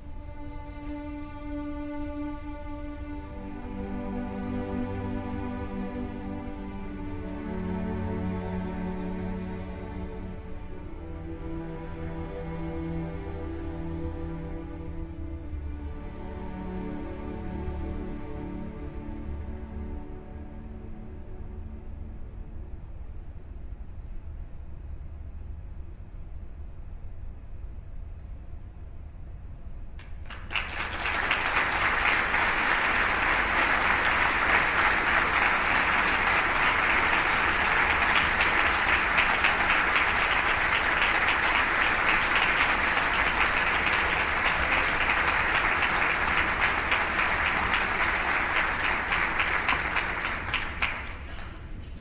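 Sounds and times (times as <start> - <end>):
audience applauding: 30.0 - 51.8.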